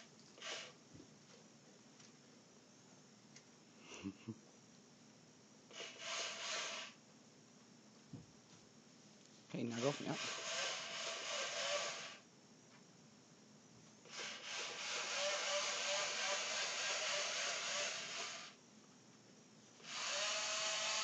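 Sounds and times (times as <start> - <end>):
toy robot gear motors whirring: 0.0 - 0.8, 5.7 - 7.0, 9.7 - 12.2, 14.1 - 18.6, 19.8 - 21.0.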